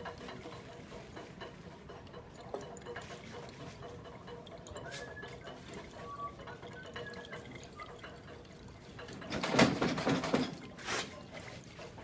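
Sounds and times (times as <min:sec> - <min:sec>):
liquid swirling in glass flask: 0:00.0 - 0:09.4, 0:10.4 - 0:12.0
liquid sloshing: 0:00.0 - 0:12.0.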